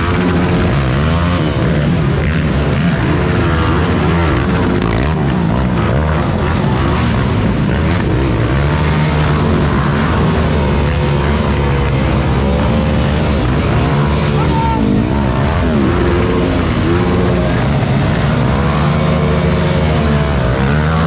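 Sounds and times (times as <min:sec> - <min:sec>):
racing quad engines revving: 0:00.0 - 0:21.0.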